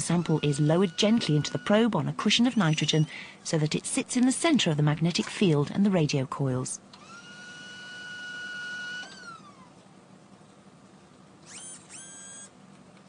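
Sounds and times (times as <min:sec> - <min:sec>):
gas whistling: 0:00.0 - 0:03.2.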